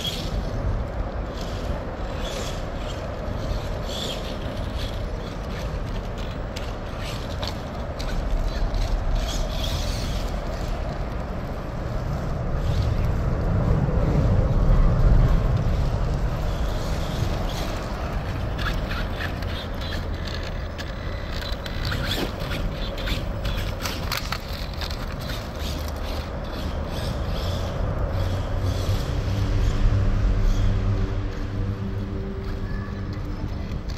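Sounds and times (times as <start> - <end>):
rc car motor running: 0.0 - 0.6, 1.3 - 10.8, 16.4 - 29.8
clicks and scrapes: 17.5 - 26.6.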